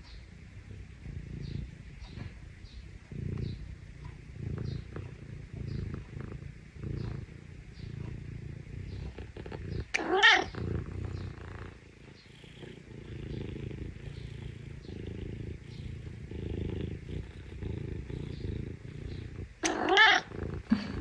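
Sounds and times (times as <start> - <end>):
kitten purring: 0.0 - 21.0
kitten meowing: 10.0 - 10.5, 19.6 - 20.3.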